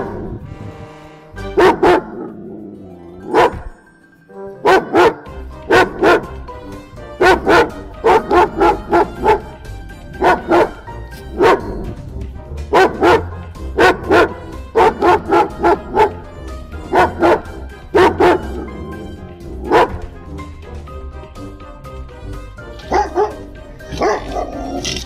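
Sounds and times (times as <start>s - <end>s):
dog barking: 0.0s - 0.3s, 1.6s - 2.4s, 3.2s - 3.8s, 4.6s - 6.5s, 7.2s - 11.9s, 12.7s - 20.2s, 22.8s - 24.9s
background music: 0.0s - 25.0s.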